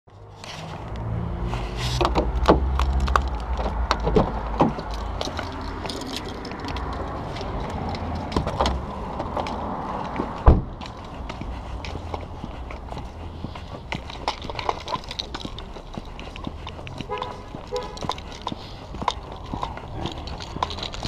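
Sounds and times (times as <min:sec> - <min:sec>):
keys jangling: 0:02.7 - 0:08.7, 0:13.9 - 0:21.0
loud thump: 0:10.5 - 0:10.7.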